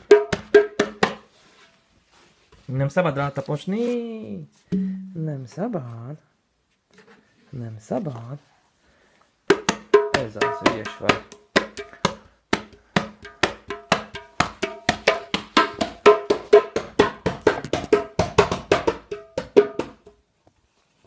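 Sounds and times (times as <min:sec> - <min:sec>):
hand drum slaps: 0:00.0 - 0:01.2, 0:09.5 - 0:20.1.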